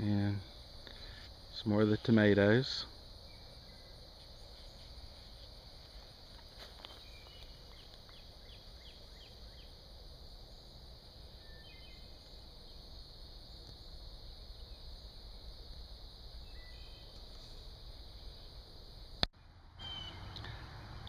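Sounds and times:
high-pitched insect drone: 0.0s - 19.2s
bird chirping: 3.2s - 4.9s, 6.9s - 9.8s, 11.4s - 15.1s, 16.4s - 17.7s, 19.4s - 20.4s.

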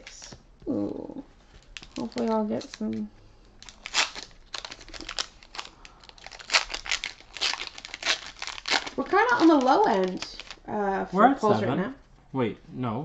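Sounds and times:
foil wrapper crinkling: 1.5s - 10.7s.

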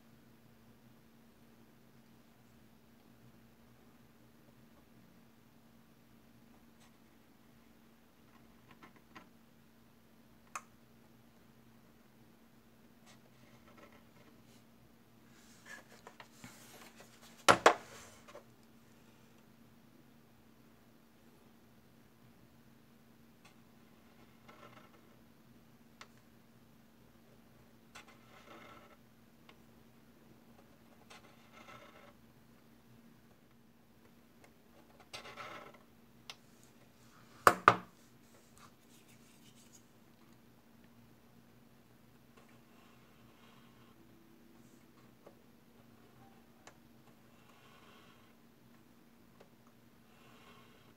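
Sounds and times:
faint scratching and ticks: 8.2s - 9.3s, 13.0s - 14.7s, 23.4s - 25.2s, 27.9s - 29.6s, 30.5s - 32.2s, 38.2s - 41.0s, 42.3s - 50.9s
faint handling noise: 13.5s - 18.8s, 36.4s - 40.5s.

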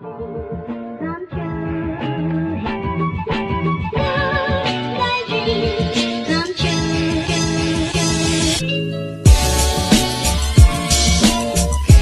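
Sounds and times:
background music with kick drum: 9.2s - 12.0s.

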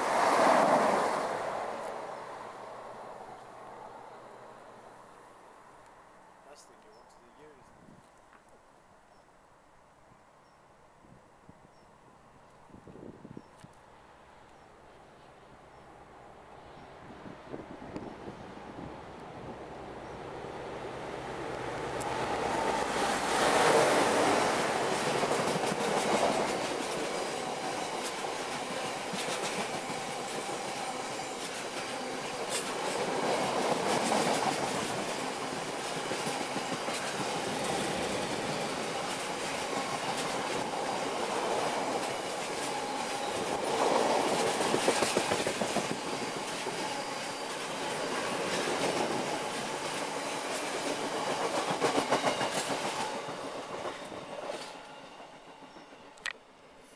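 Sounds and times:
diesel locomotive: 14.0s - 56.9s
train wheels rumbling: 17.2s - 56.2s.

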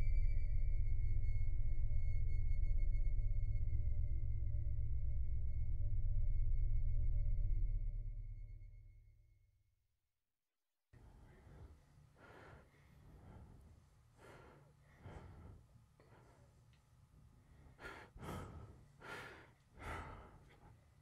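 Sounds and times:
low steady hum: 0.0s - 8.8s
woman breathing heavily: 11.0s - 21.0s.

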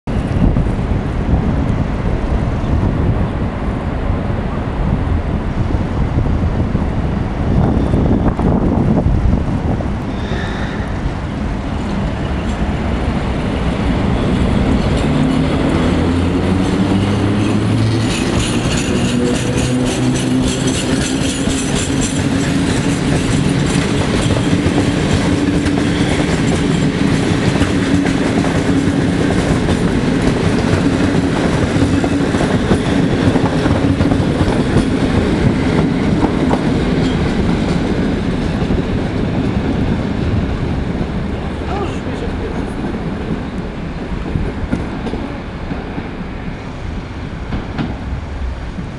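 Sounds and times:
electric locomotive hum: 0.1s - 48.9s
train wheels clicking over rail joints: 11.7s - 41.4s, 47.4s - 48.4s.

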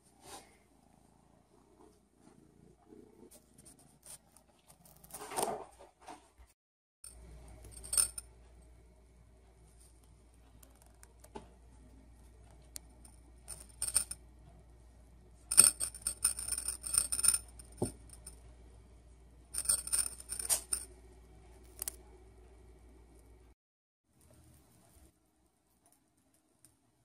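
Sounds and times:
metallic jingling: 7.6s - 8.3s, 13.5s - 14.2s, 15.5s - 18.4s, 19.6s - 20.9s.

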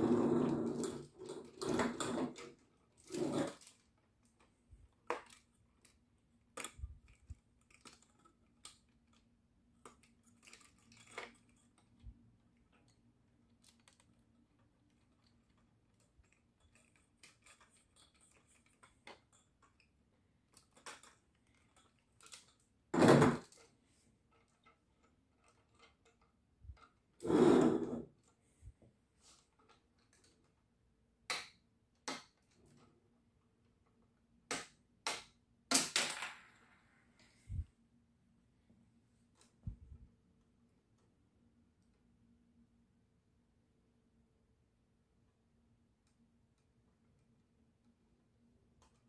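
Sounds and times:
plastic bricks clicking and rattling: 0.7s - 27.0s.

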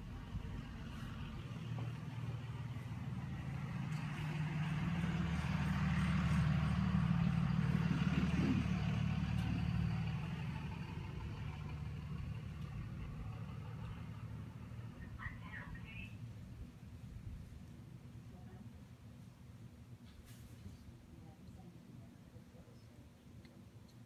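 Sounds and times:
low engine hum: 0.0s - 19.8s.

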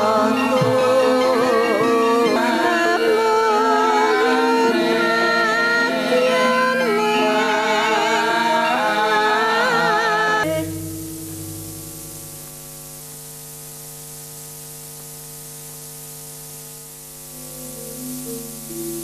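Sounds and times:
mains hum: 0.0s - 19.0s
steady hiss: 0.0s - 19.0s.

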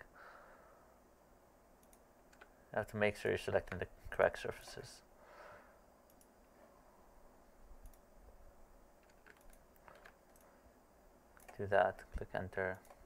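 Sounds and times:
faint computer clicks: 1.8s - 3.0s, 6.0s - 6.6s, 7.8s - 8.1s, 9.0s - 10.6s, 11.3s - 13.0s.

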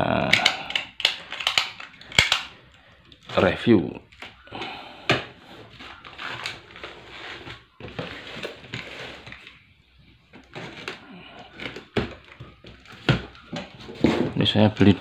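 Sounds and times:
hands scraping cardboard: 5.4s - 9.4s.

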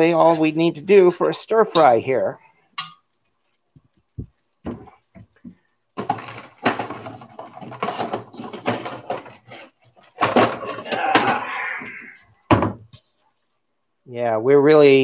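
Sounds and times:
kitchenware clattering: 2.8s - 3.1s, 6.0s - 11.4s.

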